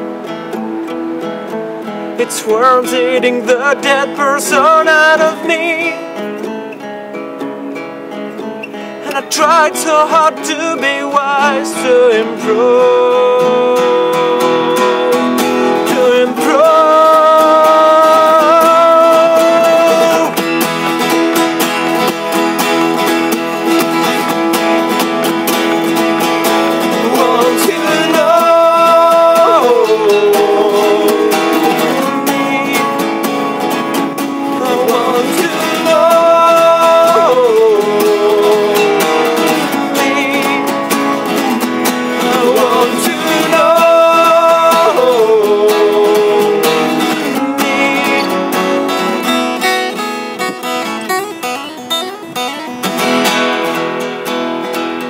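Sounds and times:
acoustic guitars playing: 0:00.0 - 0:55.0
man singing: 0:02.2 - 0:06.4, 0:09.0 - 0:20.6, 0:26.6 - 0:51.2.

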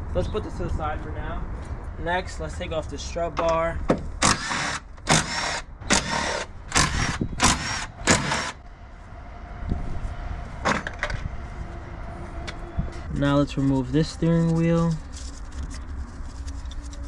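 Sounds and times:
power tool bursts: 0:04.2 - 0:08.6.

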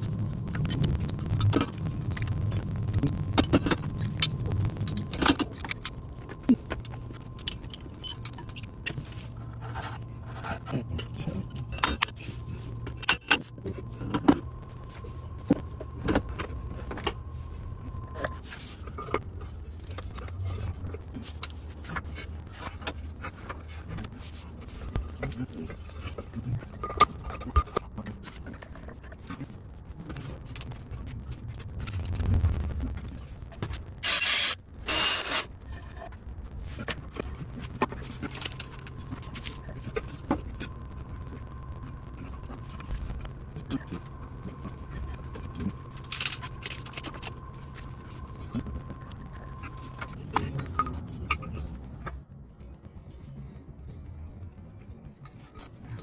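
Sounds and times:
steady high tone: 0:00.0 - 0:21.5
low hum: 0:00.0 - 0:56.0.

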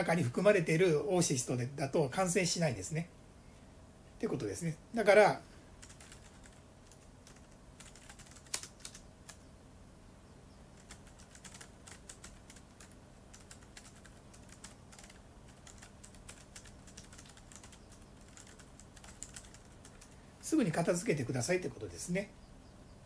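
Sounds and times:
keyboard typing clicks: 0:05.8 - 0:09.4, 0:10.8 - 0:20.2.

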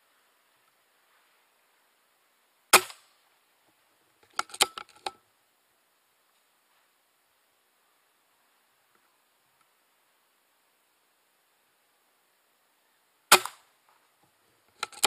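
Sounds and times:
air rifle shot: 0:02.7 - 0:03.1, 0:13.3 - 0:13.7.

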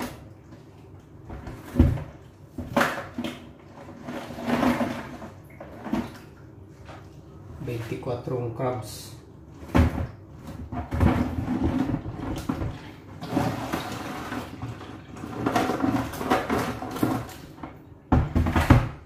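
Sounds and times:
plastic bucket knocks and scrapes: 0:01.2 - 0:06.2, 0:09.6 - 0:19.0.

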